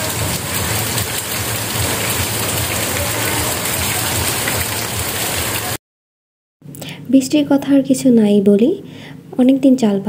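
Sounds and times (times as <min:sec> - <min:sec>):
heavy rain on water and leaves: 0:00.0 - 0:05.8.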